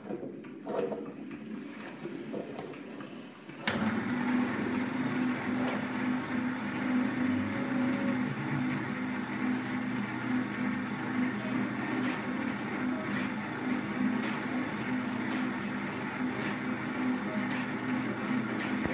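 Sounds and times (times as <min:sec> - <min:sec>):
juicer motor humming: 0:00.0 - 0:18.9
juicer switch click: 0:03.7 - 0:04.0.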